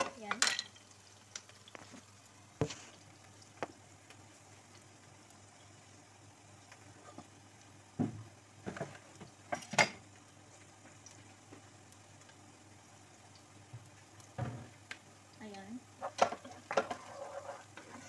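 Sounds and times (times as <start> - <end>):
kitchenware clattering: 0.0 - 0.9
onion frying in a pan: 0.0 - 18.0.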